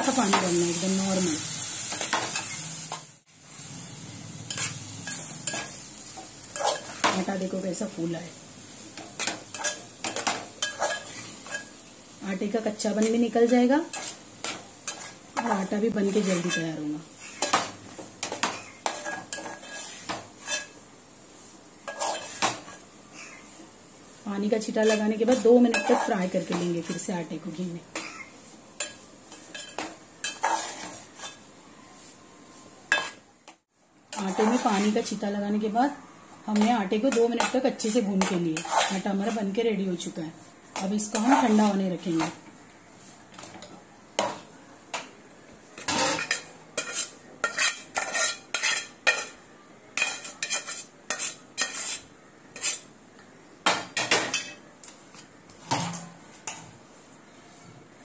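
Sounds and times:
faint frying hiss: 0.0 - 58.0
spatula scraping metal pot: 18.3 - 20.8, 24.8 - 26.3, 29.5 - 31.4, 36.6 - 39.3, 45.8 - 49.4, 50.0 - 52.9.

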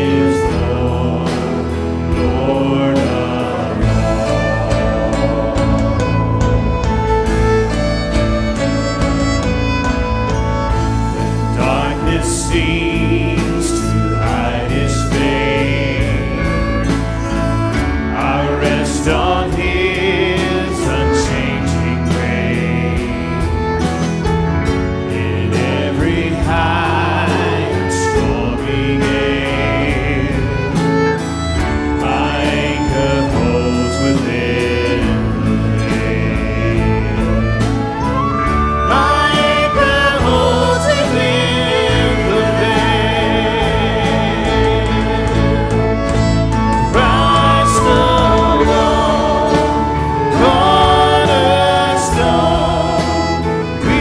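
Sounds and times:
live band with violin: 0.0 - 54.0
woman singing: 46.8 - 54.0.

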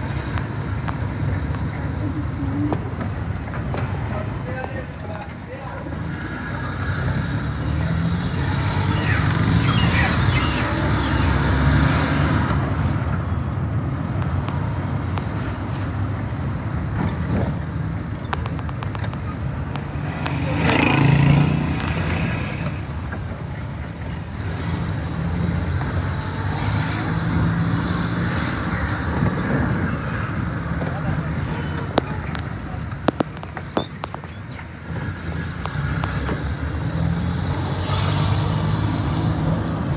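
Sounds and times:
vehicle engine and road rumble: 0.0 - 39.9.

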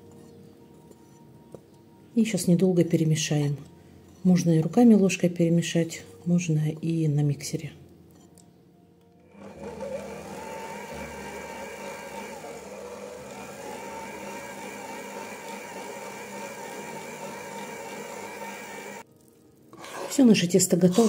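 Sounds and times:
stand mixer motor running: 9.3 - 19.0.

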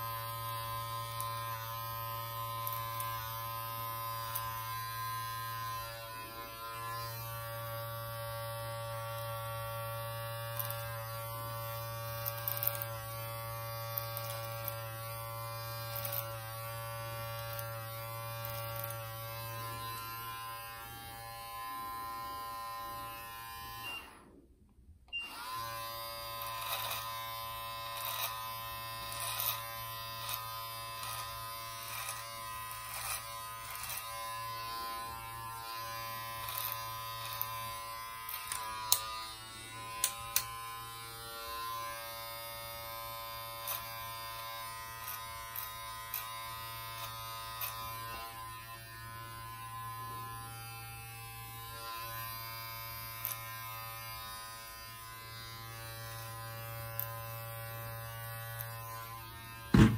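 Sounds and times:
beard trimmer buzzing: 0.0 - 24.4, 25.0 - 59.9
trimmer blades clicking: 10.5 - 11.1, 11.7 - 13.2, 13.8 - 14.9, 15.7 - 16.4, 17.4 - 19.0, 26.4 - 27.1, 28.0 - 28.4, 29.1 - 30.4, 32.9 - 34.2, 36.4 - 37.6, 38.3 - 39.2, 39.9 - 40.6.

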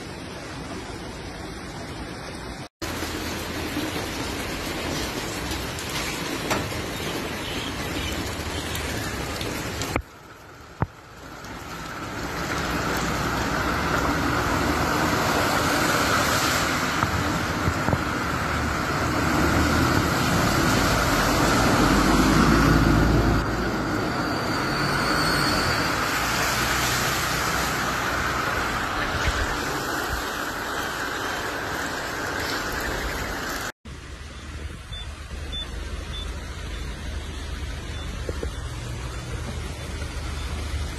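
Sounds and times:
floodwater rushing: 0.0 - 40.9
vehicle splashing through water: 0.0 - 40.9
vehicle engine rumble: 25.4 - 40.9.

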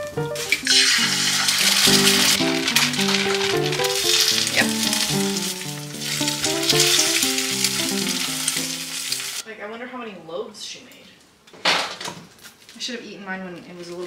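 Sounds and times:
background music: 0.0 - 9.4
egg sizzling in oil: 0.3 - 9.4
spatula scraping pan: 0.6 - 5.0.

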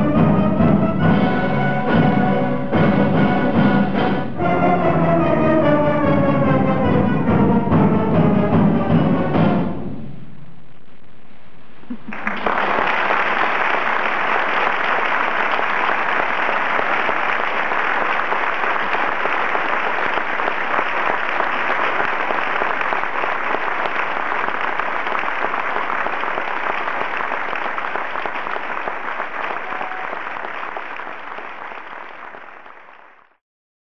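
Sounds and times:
audience applauding: 11.9 - 33.4.

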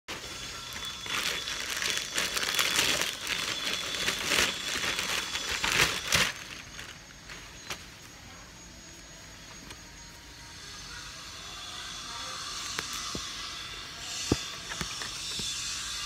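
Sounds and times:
plastic packaging crinkling: 0.1 - 7.9.

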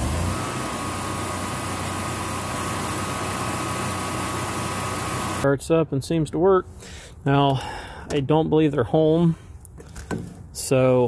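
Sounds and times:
generator engine running: 0.0 - 5.4.

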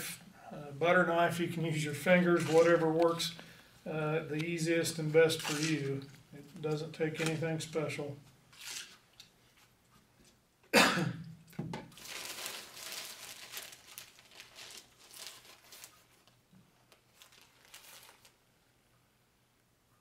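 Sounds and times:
plastic bag crinkling: 2.3 - 3.2, 5.3 - 6.0, 11.9 - 18.5
person coughing: 10.7 - 11.3.

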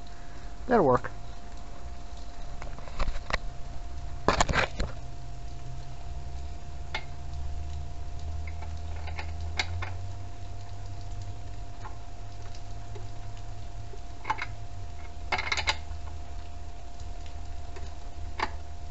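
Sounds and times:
steady low hum: 0.0 - 18.9.

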